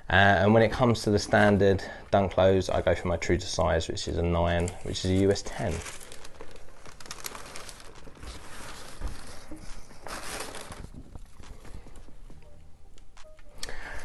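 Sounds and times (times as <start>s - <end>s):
tissue paper rustling: 4.5s - 12.4s.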